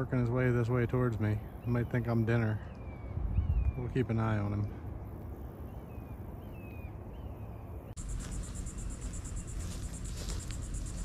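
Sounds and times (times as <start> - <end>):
low steady rumble: 7.0 - 11.0
insects trilling: 8.0 - 11.0.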